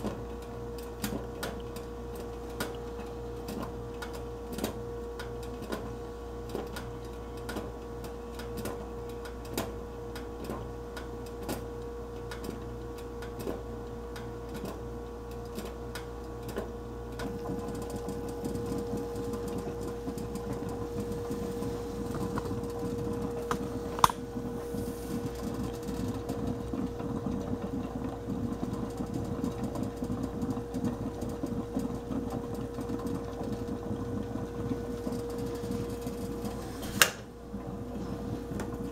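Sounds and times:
percolator ticks and clicks: 0.0 - 21.4, 25.2 - 37.1
percolator water bubbling: 17.0 - 36.6.

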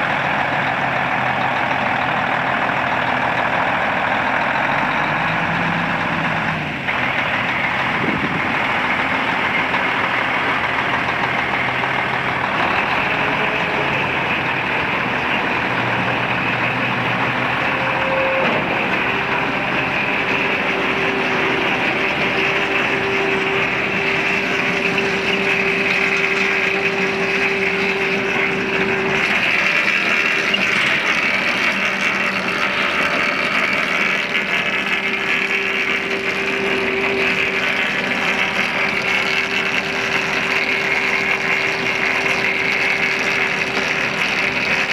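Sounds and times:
truck diesel engine idling: 0.0 - 44.9
mid-pitched whine: 2.3 - 44.9.

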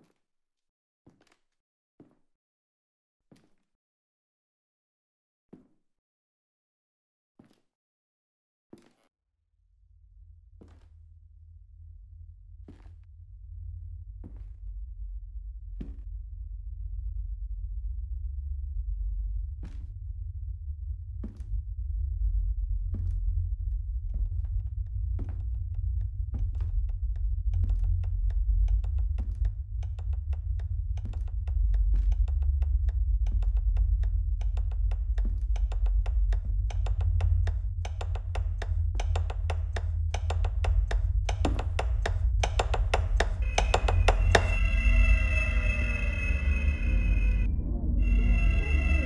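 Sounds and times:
sharp ticking knocks: 34.4 - 45.9
cluster of tones: 43.4 - 49.0
low drone: 43.4 - 49.0.

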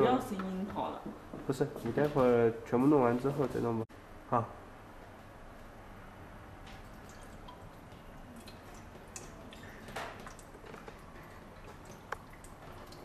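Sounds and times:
water trickling into plastic tank: 6.7 - 13.0.

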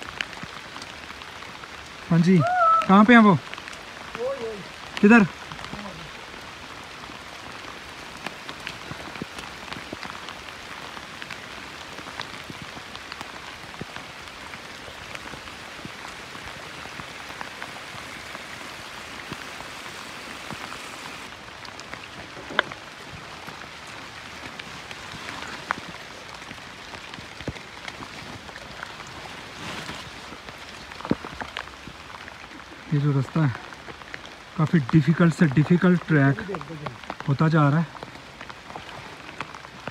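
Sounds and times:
raindrops tapping: 0.0 - 39.9
steady rain falling: 0.0 - 39.9.

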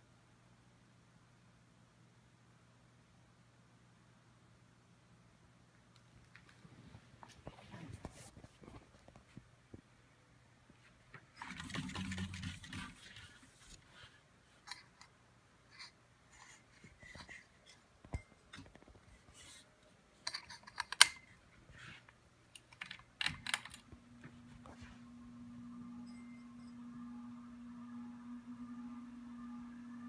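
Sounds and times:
fan motor humming: 22.9 - 30.0.

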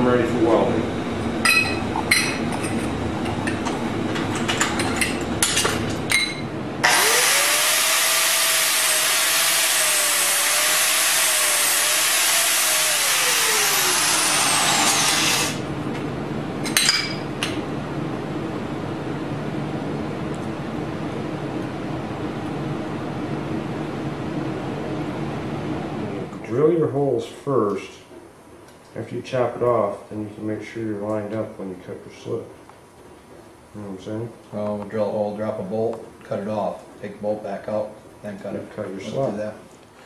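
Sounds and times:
angle grinder cutting metal tubing: 6.8 - 15.6.

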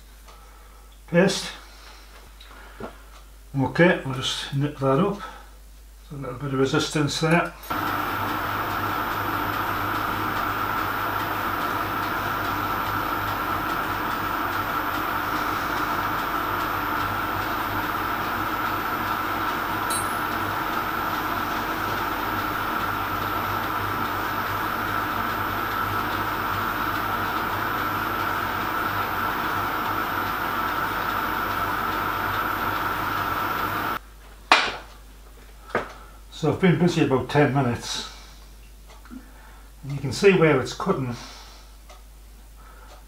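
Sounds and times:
metal lathe humming and whining: 7.7 - 34.0.

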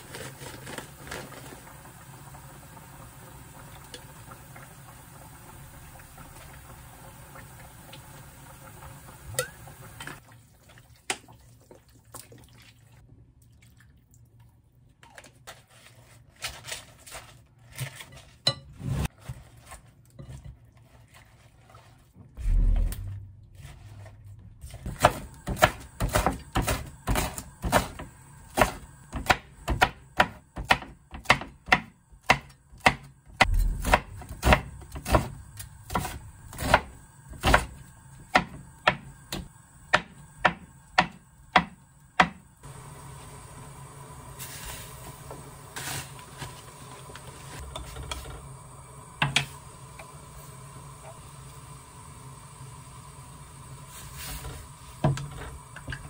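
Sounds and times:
heavy thud: 22.4 - 23.6, 33.4 - 34.7
knife chopping on cutting board: 24.9 - 37.7.

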